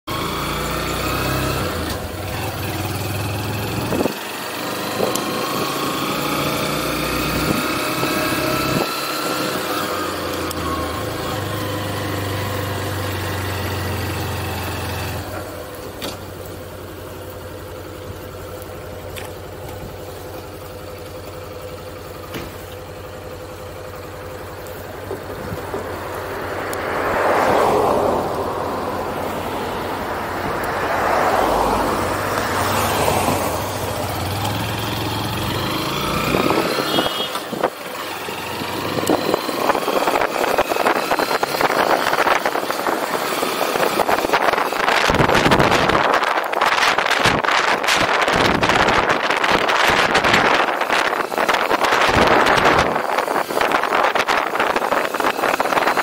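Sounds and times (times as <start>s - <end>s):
small motorcycle engine revving: 0.1s - 16.8s, 18.9s - 56.0s
passing car: 22.2s - 56.0s.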